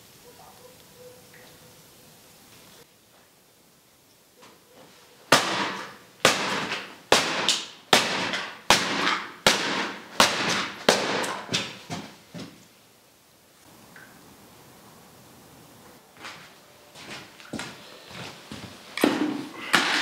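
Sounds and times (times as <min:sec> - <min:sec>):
cans crushed by boot stomps: 0:05.3 - 0:12.6, 0:19.0 - 0:20.0.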